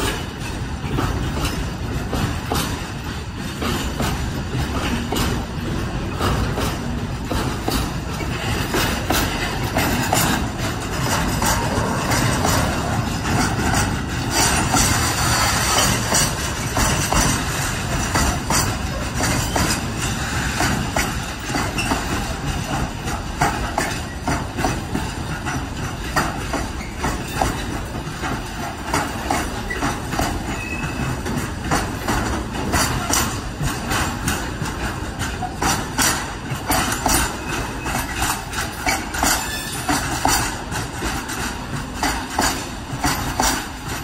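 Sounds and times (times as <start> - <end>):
train wheels rumbling on rails: 0.0 - 44.0
wheels clicking over rail joints: 0.0 - 44.0.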